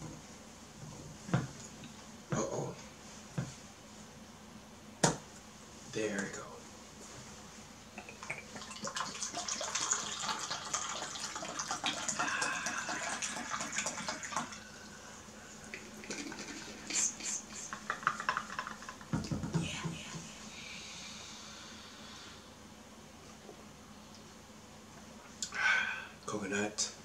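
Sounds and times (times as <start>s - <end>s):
liquid pouring into plastic cup: 8.3s - 14.7s.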